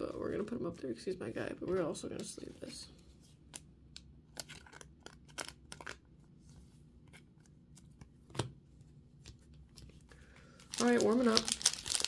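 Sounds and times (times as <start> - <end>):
plastic sleeve crinkling: 9.5 - 12.0.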